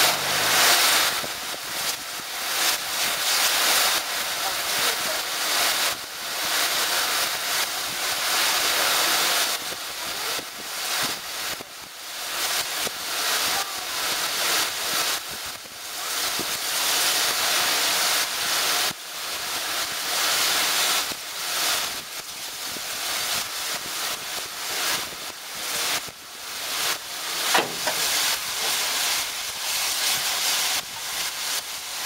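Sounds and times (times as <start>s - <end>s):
steam locomotive exhaust beats: 0.0s - 8.7s, 19.9s - 32.0s.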